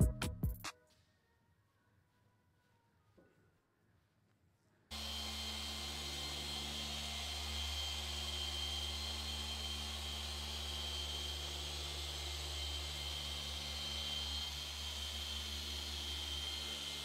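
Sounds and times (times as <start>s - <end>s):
electric machine polisher running: 4.9s - 17.0s.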